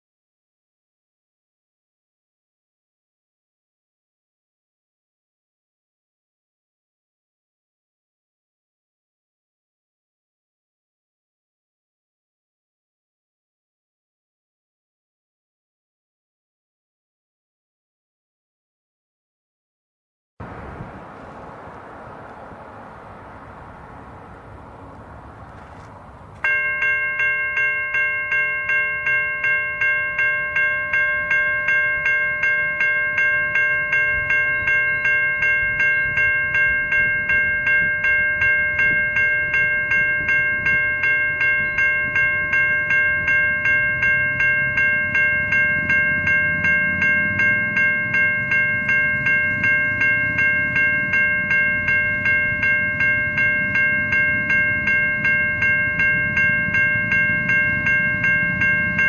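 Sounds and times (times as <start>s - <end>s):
level crossing bells ringing: 26.4s - 59.0s.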